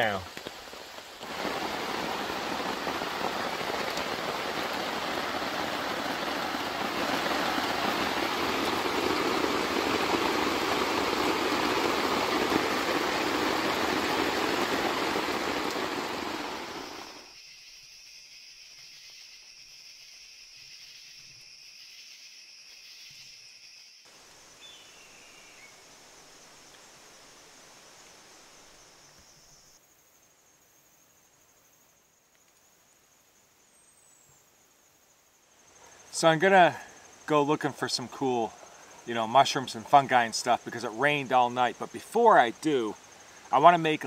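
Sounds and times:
heavy rain on a tent: 0.0s - 17.3s, 35.7s - 44.0s
night insects chirring: 0.0s - 44.0s.

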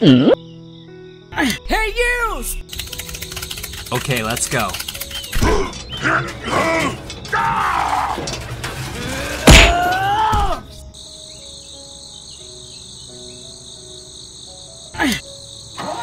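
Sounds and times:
soft background music: 0.0s - 16.0s
steady high chirring: 2.6s - 9.0s.

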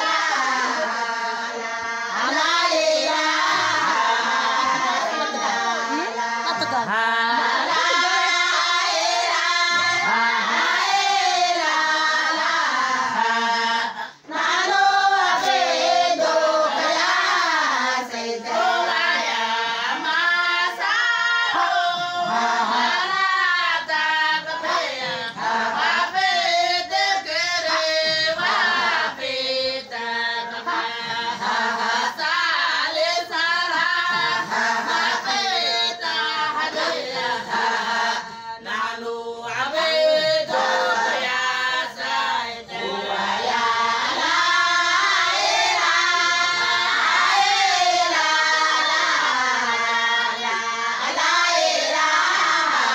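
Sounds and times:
women singing in chorus: 0.0s - 52.9s.

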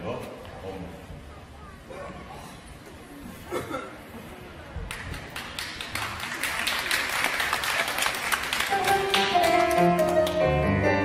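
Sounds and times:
audience applause: 4.9s - 10.5s.

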